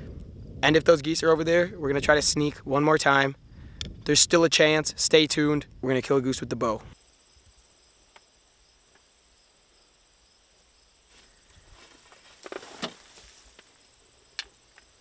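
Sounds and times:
faint high hiss: 6.6s - 15.0s
soft rustles and clicks: 11.1s - 15.0s.

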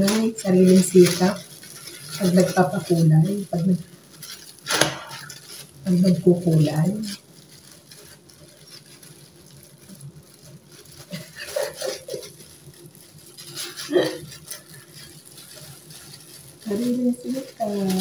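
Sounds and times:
patting and rubbing hair: 0.0s - 18.0s.

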